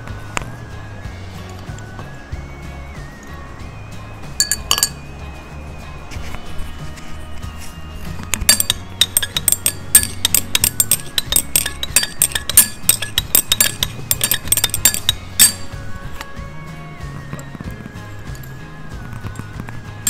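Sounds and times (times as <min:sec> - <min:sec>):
glass rod clinking in beaker: 0:04.4 - 0:05.0, 0:08.2 - 0:16.3.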